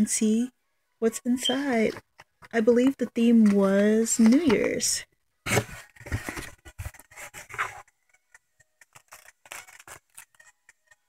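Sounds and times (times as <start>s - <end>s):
cardboard scraping and rustling: 5.4s - 7.9s.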